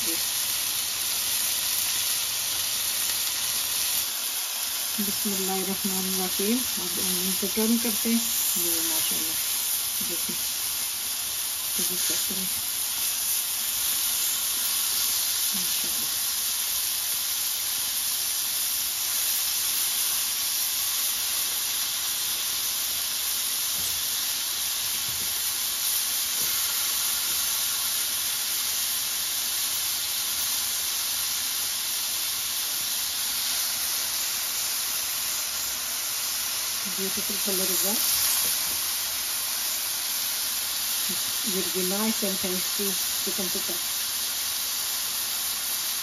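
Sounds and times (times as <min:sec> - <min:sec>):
meat sizzling in hot oil: 0:00.0 - 0:46.0.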